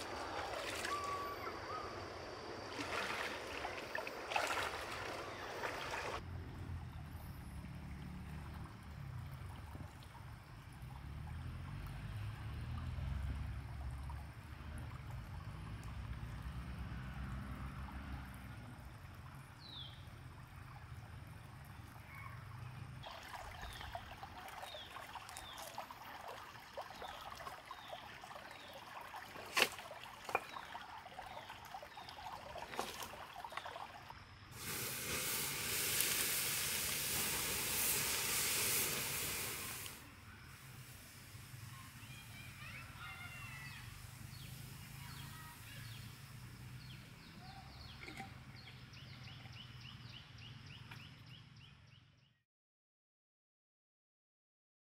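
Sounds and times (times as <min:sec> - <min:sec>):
hissing rush of water: 0:00.0 - 0:06.2, 0:34.5 - 0:47.8
stream water flowing: 0:00.0 - 0:49.8.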